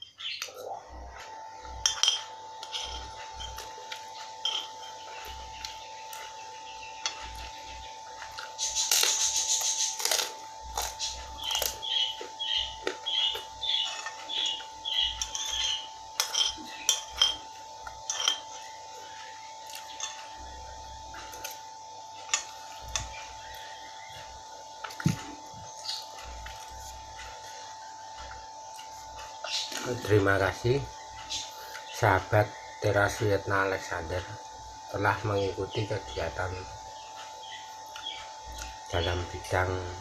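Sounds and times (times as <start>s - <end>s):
steady thin hum: 0.0s - 40.0s
spoon scraping glass bowl: 1.8s - 6.2s, 13.1s - 18.7s
eating sounds: 2.7s - 32.0s.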